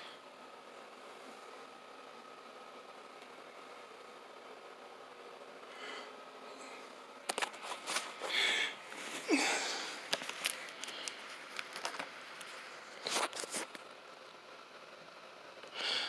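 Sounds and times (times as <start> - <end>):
foil balloon crinkling: 10.0 - 13.8.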